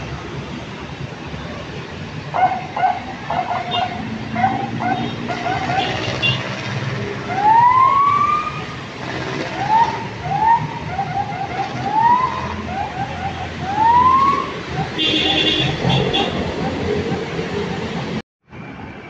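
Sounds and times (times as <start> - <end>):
street traffic rumble: 0.0 - 19.0
police siren whooping: 7.2 - 8.8, 9.4 - 18.1.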